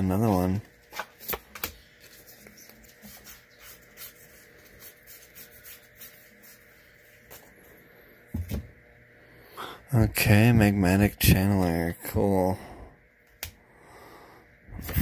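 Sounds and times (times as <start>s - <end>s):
cards sliding and scraping: 0.8s - 7.5s.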